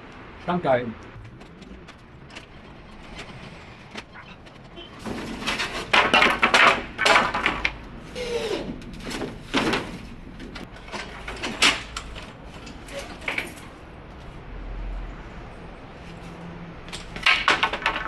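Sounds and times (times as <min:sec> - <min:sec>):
wooden battens knocking and scraping: 0:01.2 - 0:13.8, 0:16.9 - 0:18.0.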